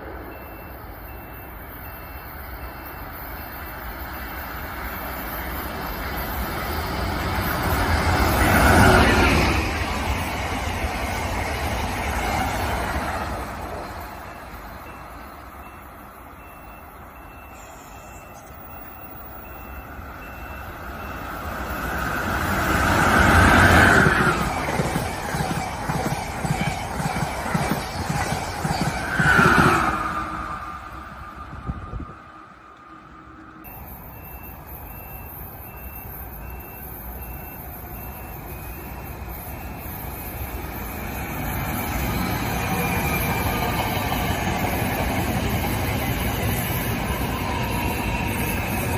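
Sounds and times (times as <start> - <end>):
approaching train wheel and rail noise: 0.0 - 48.9
passing train rumble: 0.0 - 48.9
faint high beep: 0.1 - 3.9, 13.8 - 48.9.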